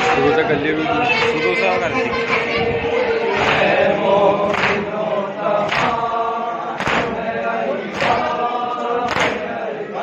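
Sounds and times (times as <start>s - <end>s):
men chanting in unison: 0.0s - 10.0s
loud chest-beating slaps: 5.7s - 6.0s, 6.8s - 7.2s, 9.1s - 9.4s.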